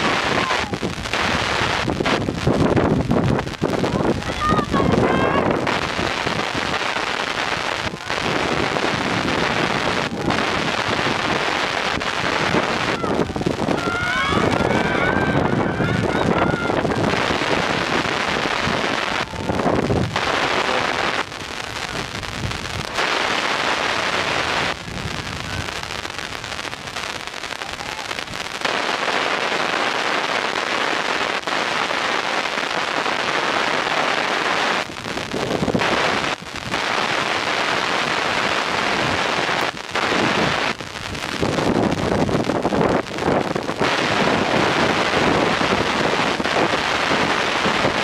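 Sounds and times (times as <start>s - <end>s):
wind buffeting microphone: 0.0s - 29.8s, 32.7s - 48.0s.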